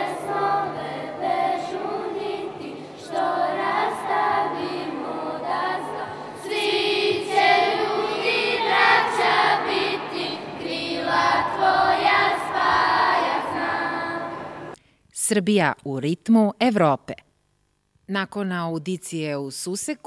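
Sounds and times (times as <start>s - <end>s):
girls singing in unison: 0.0s - 14.8s.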